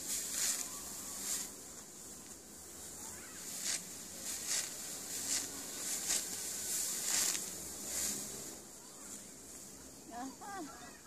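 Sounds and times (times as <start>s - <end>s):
rice stalks being cut swishing: 0.0s - 8.6s.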